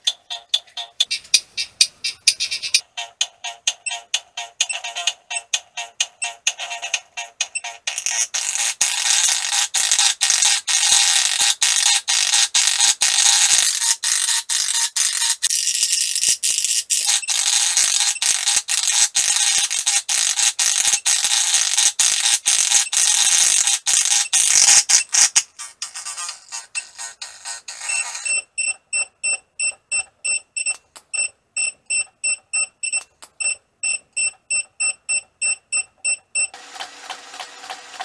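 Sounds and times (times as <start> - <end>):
harsh glitching electronic noise: 16.9 - 20.0.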